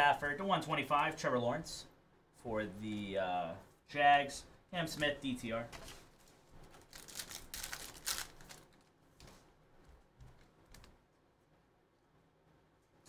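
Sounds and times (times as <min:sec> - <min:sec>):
foil wrapper tearing and crinkling: 0:06.7 - 0:08.9.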